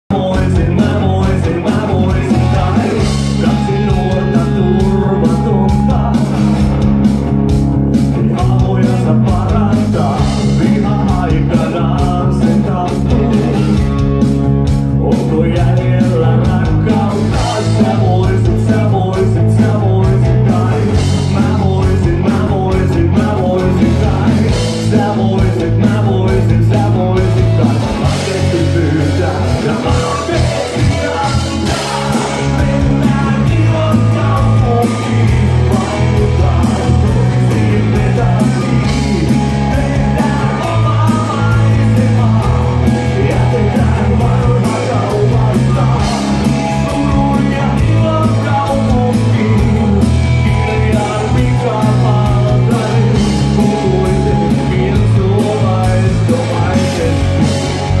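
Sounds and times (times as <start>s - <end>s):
male lead vocal: 0.0s - 7.1s, 7.9s - 58.0s
drum kit beat: 0.0s - 58.0s
electric bass guitar: 0.0s - 58.0s
electric guitar: 0.0s - 58.0s.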